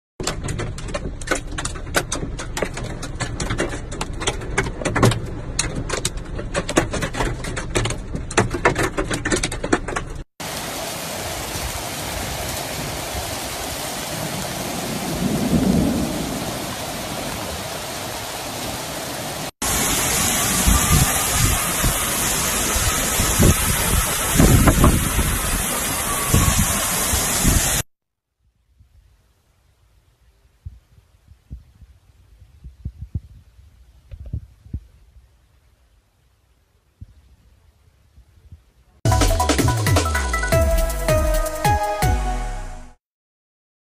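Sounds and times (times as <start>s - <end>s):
rain pelting car roof: 0.2s - 27.8s
downpour hissing on street: 10.4s - 27.9s.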